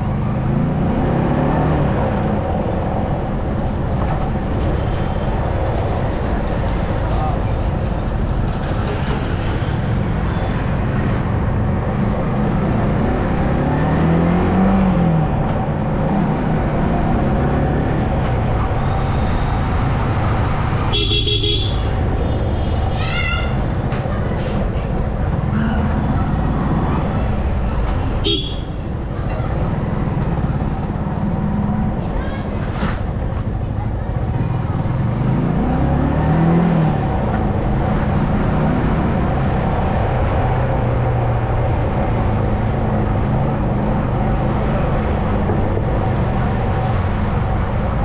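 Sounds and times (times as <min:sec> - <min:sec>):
road noise: 0:00.0 - 0:48.0
horn honking: 0:20.9 - 0:21.9, 0:28.2 - 0:28.8.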